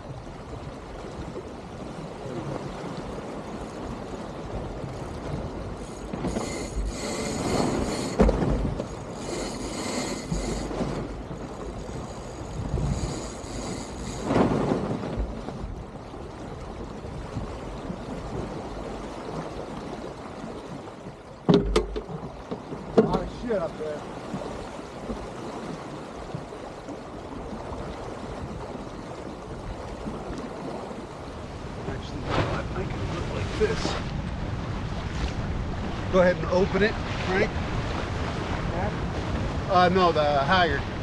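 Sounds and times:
water rushing along boat hull: 0:00.0 - 0:41.0
sharp clicks or knocks: 0:21.5 - 0:22.2.

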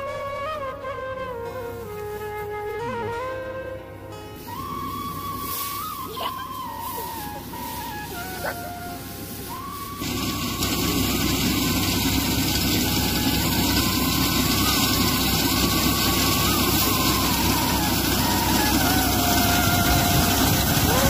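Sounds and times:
tractor engine running: 0:04.4 - 0:21.0.

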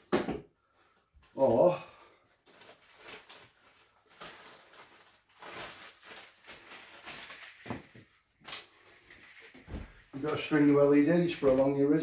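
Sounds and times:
plastic string light rustling: 0:02.3 - 0:10.8.

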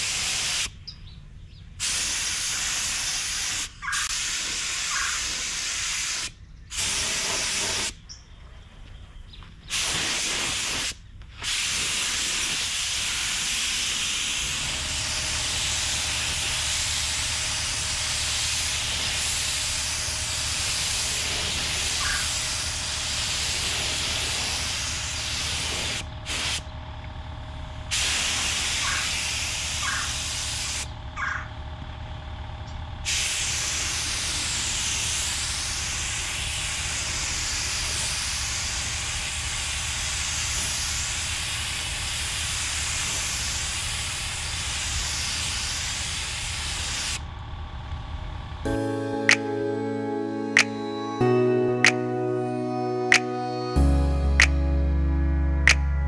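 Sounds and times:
air compressor humming: 0:00.0 - 0:00.8, 0:01.5 - 0:08.1, 0:09.7 - 0:50.9
paint spray gun hissing: 0:00.0 - 0:00.8, 0:01.8 - 0:08.0, 0:09.7 - 0:26.7, 0:27.9 - 0:30.9, 0:33.1 - 0:47.2.

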